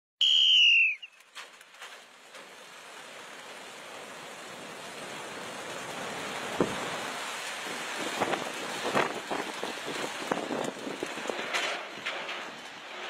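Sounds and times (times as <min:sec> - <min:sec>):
high whistle-like tone: 0:00.2 - 0:01.3.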